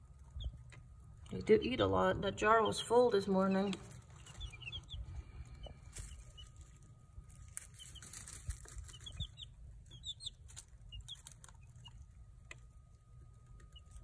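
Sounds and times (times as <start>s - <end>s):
chicks peeping: 0.0s - 14.0s
wood shavings rustling: 5.9s - 12.0s.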